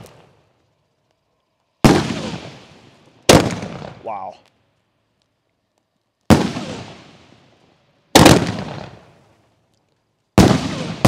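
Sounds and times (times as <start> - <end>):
firework bangs echoing: 1.8 - 4.4, 6.3 - 9.2, 10.4 - 11.0.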